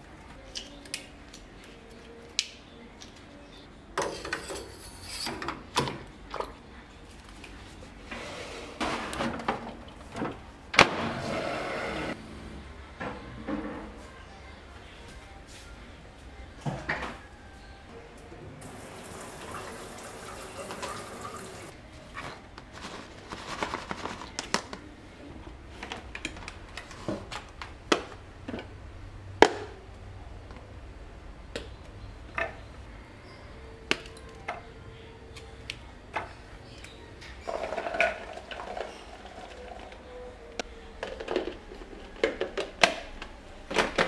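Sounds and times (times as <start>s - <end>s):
tap running: 18.7s - 21.7s.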